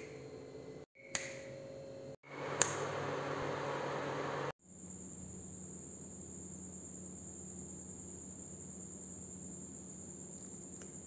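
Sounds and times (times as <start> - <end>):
cooling fan humming: 0.0 - 4.6.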